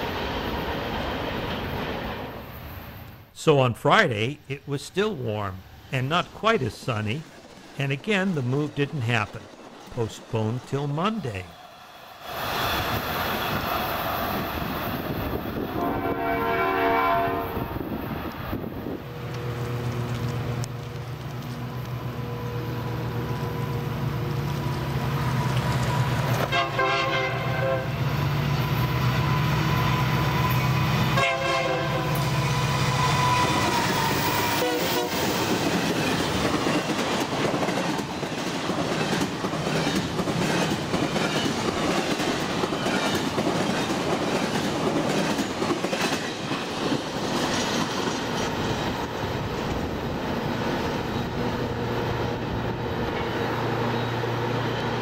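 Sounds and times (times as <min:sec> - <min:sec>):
diesel locomotive hum: 0:00.0 - 0:55.0
train air horn blasts: 0:15.8 - 0:17.8, 0:26.4 - 0:28.0, 0:31.2 - 0:33.6, 0:34.4 - 0:35.2.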